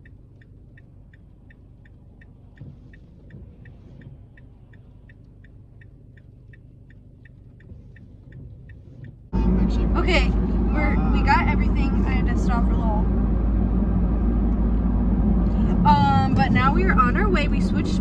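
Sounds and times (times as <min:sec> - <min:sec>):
car indicator clicking: 0:00.0 - 0:09.3
faint low car rumble: 0:00.0 - 0:18.0.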